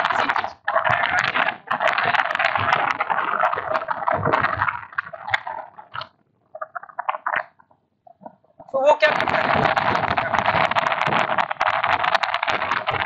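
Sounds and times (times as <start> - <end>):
stylus scratching on drawing tablet: 0.0 - 5.8, 8.9 - 13.0.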